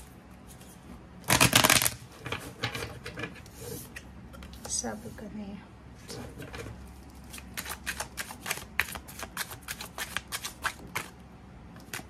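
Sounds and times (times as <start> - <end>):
cards being shuffled by hand: 7.2 - 11.2.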